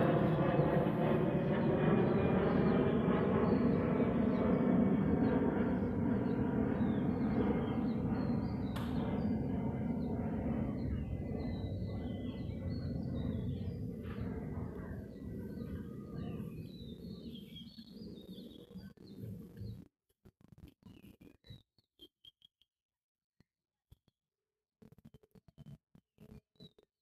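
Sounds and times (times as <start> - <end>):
engine-like drone: 0.0 - 19.9
sharp click: 8.7 - 9.0
faint bird chirps: 20.6 - 22.7.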